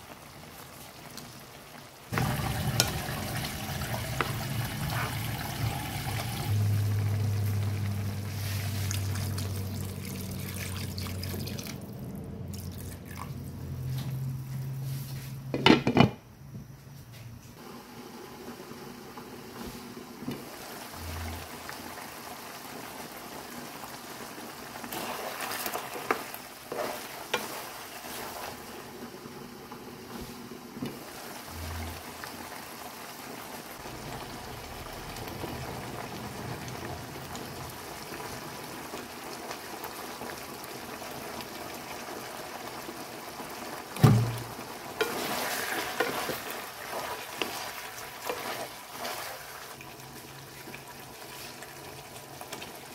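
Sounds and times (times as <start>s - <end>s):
meat sizzling in a wok: 1.9s - 10.4s, 31.0s - 52.9s
spatula scraping a pan: 24.9s - 28.6s, 45.0s - 49.6s.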